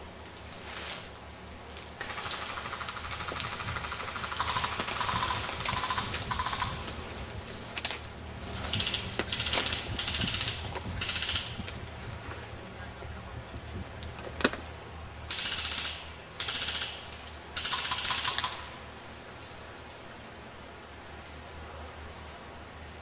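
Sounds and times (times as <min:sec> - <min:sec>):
airsoft guns firing bursts: 0:02.0 - 0:06.9, 0:08.7 - 0:11.7, 0:15.3 - 0:18.8.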